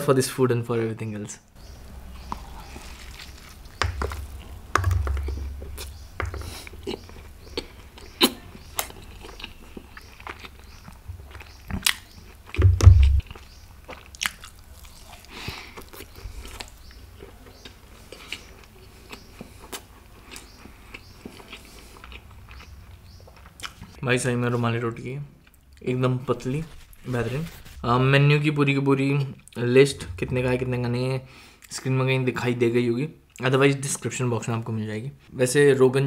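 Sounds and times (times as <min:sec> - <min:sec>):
person chewing with mouth clicks: 0:02.2 - 0:24.0
dull thumps: 0:12.6 - 0:13.4.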